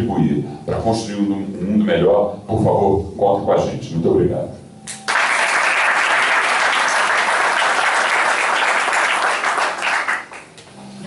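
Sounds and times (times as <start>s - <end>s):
audience applauding: 5.0s - 10.6s.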